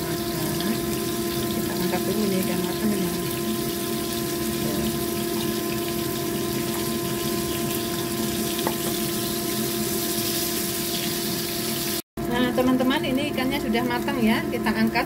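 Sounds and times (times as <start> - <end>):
steady hum: 0.0 - 11.6
fish sizzling in hot oil: 0.0 - 15.0.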